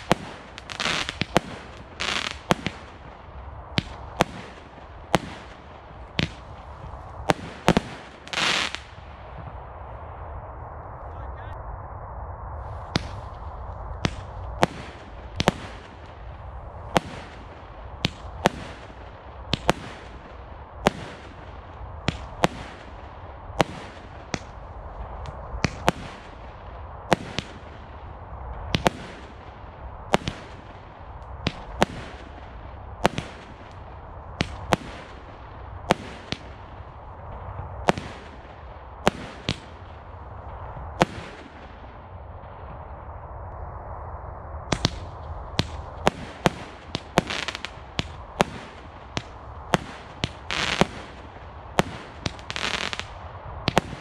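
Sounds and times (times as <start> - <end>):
firework bangs with echo: 0.0 - 6.6, 7.2 - 8.9, 34.4 - 40.0, 45.6 - 54.0.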